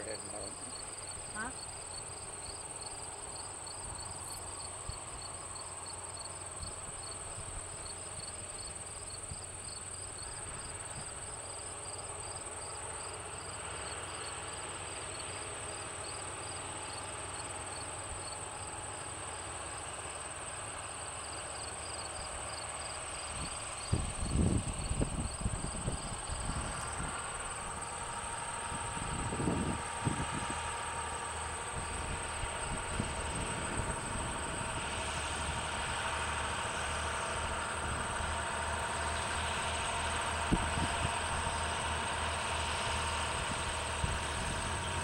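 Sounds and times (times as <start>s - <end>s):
insects chirping: 0.0s - 35.5s
tractor engines: 0.0s - 45.0s.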